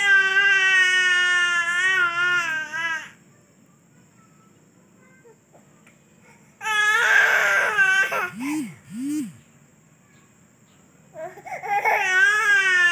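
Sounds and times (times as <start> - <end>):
baby crying: 6.6 - 8.7.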